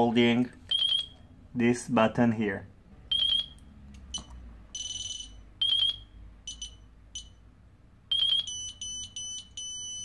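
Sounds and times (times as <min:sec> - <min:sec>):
electronic beeping: 0:00.7 - 0:01.2, 0:03.1 - 0:07.4, 0:08.1 - 0:10.0.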